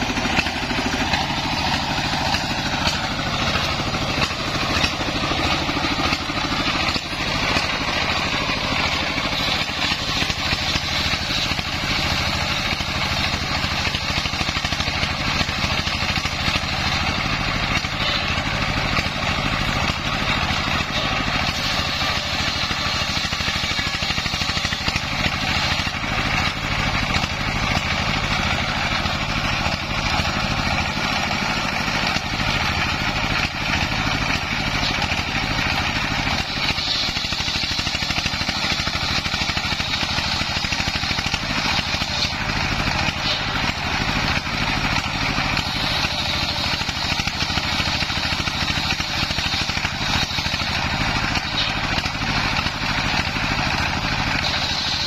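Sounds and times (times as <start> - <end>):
circular saw cutting whine: 0.0 - 55.0
diesel engine running: 0.0 - 55.0.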